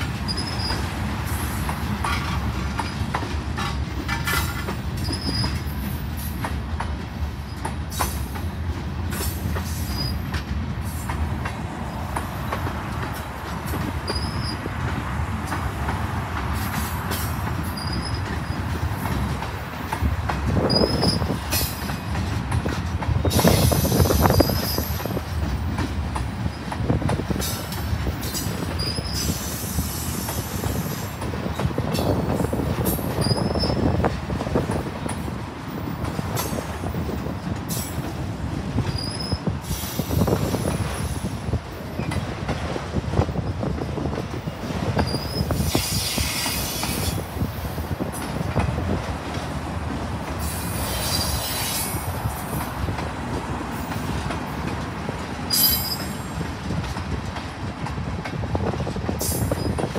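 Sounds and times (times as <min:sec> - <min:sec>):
freight cars rolling on rails: 0:00.0 - 0:59.9
high wheel squeals: 0:00.2 - 0:00.9, 0:05.0 - 0:05.7, 0:09.7 - 0:10.2, 0:14.1 - 0:14.7, 0:17.6 - 0:18.8, 0:20.6 - 0:21.4, 0:28.3 - 0:31.1, 0:33.1 - 0:34.0, 0:38.8 - 0:41.1, 0:45.0 - 0:47.2, 0:50.4 - 0:52.0, 0:55.5 - 0:56.4.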